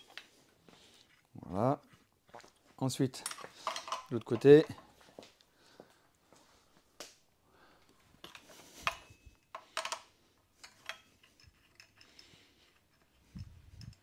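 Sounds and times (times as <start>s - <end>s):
spanner clinking on metal nut: 3.2s - 4.8s.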